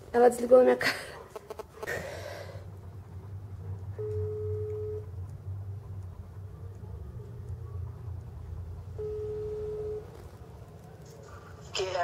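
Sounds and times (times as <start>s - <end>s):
low hum: 1.9s - 11.9s
phone electronic beep: 4.0s - 5.0s, 9.0s - 10.1s.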